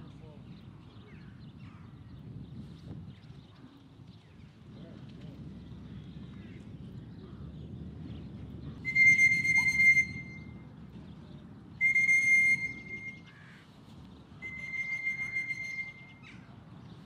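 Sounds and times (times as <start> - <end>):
whistle blasts: 8.8 - 10.6, 11.8 - 13.3, 14.4 - 16.3.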